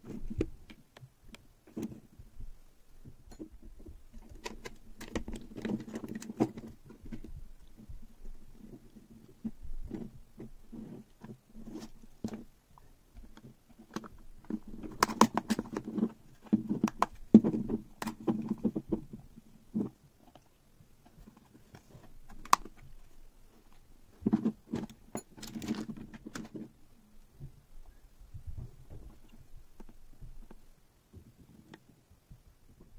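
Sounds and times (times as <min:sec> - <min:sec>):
hands rubbing and scraping plastic: 0:03.4 - 0:12.5, 0:13.1 - 0:26.8
small plastic clicks: 0:21.8 - 0:22.9.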